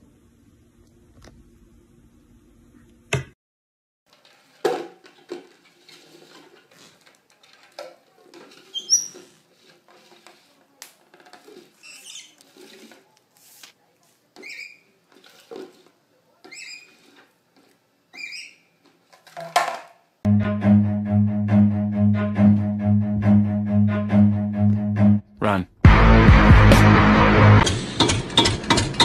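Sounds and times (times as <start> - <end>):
plastic bowl scraping on wooden floor: 4.1 - 13.8, 14.4 - 19.8.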